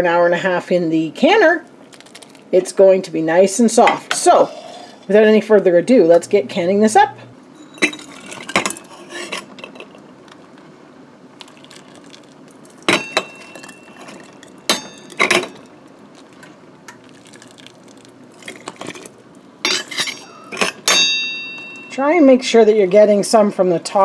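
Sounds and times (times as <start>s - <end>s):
metal ladle clinking on funnel and jar: 12.9s - 15.6s.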